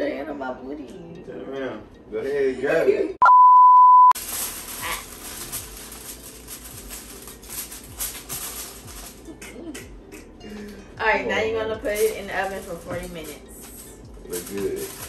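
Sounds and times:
loud steady beep: 3.2 - 4.2
aluminium foil crinkling: 4.2 - 9.4, 11.8 - 15.0.

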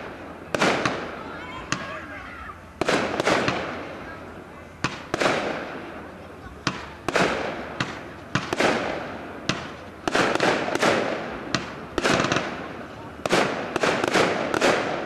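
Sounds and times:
firework shells bursting: 6.7 - 15.0.

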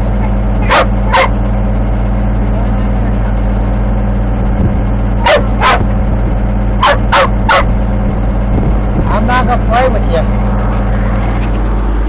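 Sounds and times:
heavy machine engine running: 0.0 - 12.0
dog barking: 0.6 - 1.4, 5.2 - 5.9, 6.8 - 7.8.

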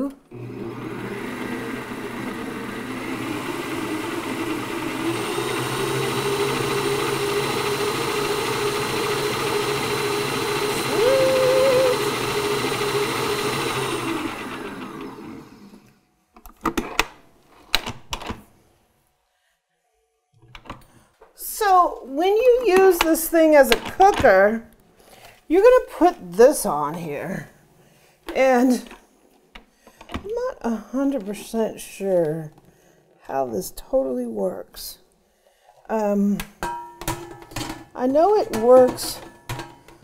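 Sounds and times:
stand mixer motor running: 0.3 - 15.8.

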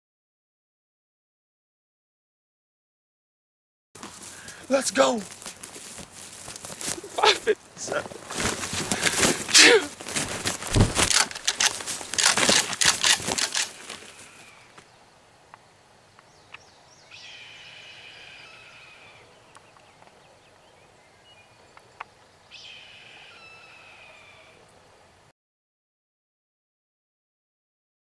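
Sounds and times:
turkey wings beating: 4.0 - 14.8
bird calling: 6.7 - 15.0, 16.2 - 24.7.

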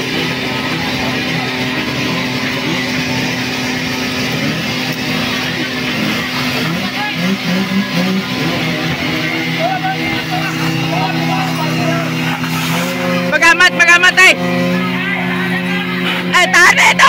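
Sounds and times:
engine running steadily: 0.0 - 17.0
people talking: 0.0 - 17.0
water spraying from fire hose: 9.8 - 13.0.

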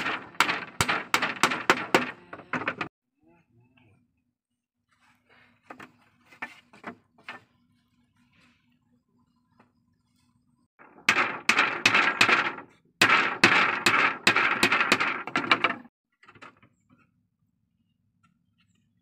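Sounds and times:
hatchet striking wooden slats: 0.0 - 2.9, 10.8 - 15.9.

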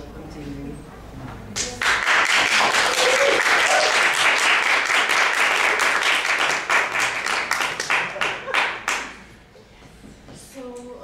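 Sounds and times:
audience applauding: 1.8 - 9.3.

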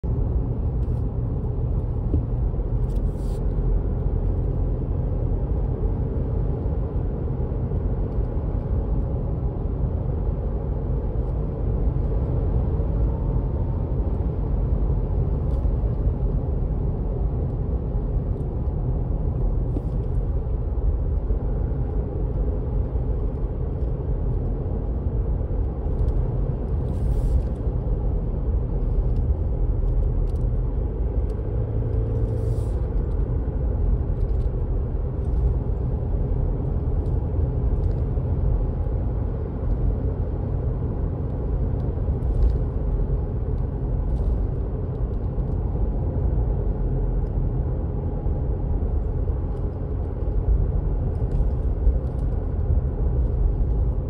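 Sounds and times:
tyre and road noise: 10.6 - 54.0
car engine: 11.1 - 54.0.

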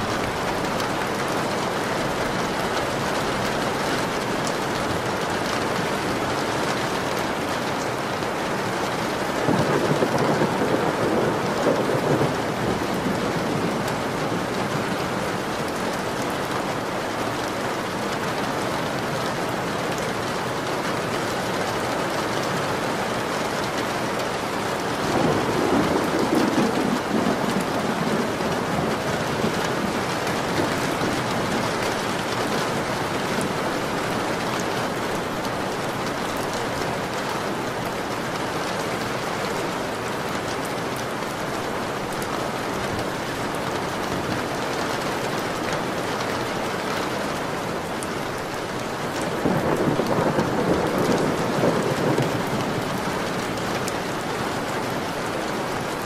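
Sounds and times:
steady rain falling: 0.0 - 56.0
thunder rumbling: 9.3 - 15.2, 25.0 - 34.4, 48.3 - 56.0.

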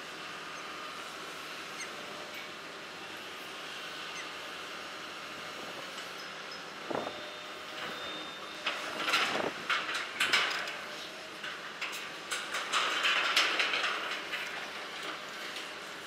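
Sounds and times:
steel crunching and scraping: 7.8 - 16.0.

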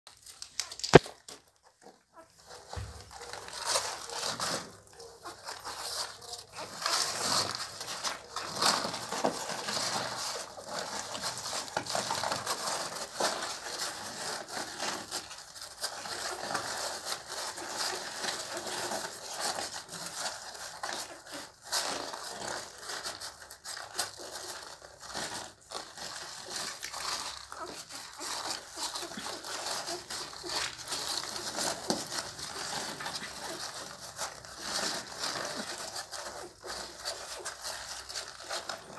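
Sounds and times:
puppies rustling and crackling: 0.1 - 38.9.

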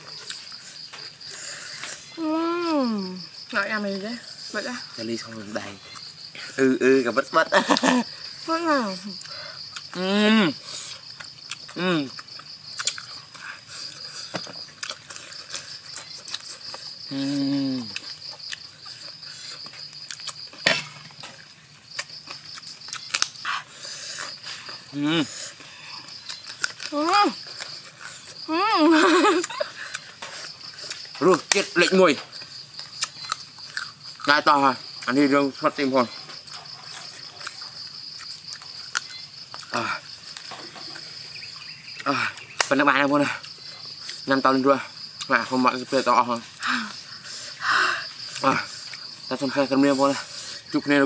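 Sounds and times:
high insect drone: 0.0 - 51.0
man humming: 10.0 - 10.6, 17.1 - 18.0
crisp chewing clicks: 22.0 - 23.4.

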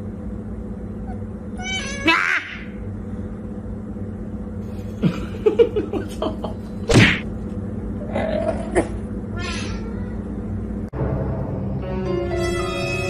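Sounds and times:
low hum: 0.0 - 13.0
sharp thud: 6.9 - 7.2.

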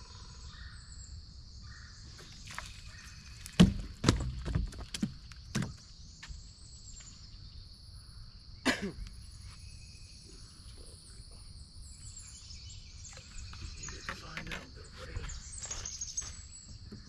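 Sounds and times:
insect chorus: 0.0 - 17.0
sharp knocks: 3.5 - 5.8.

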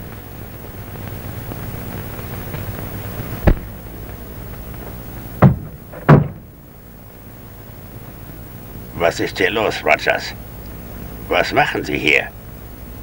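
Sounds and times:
soundtrack hiss and hum: 0.0 - 13.0
sharp bangs: 3.4 - 4.2, 5.3 - 6.6.

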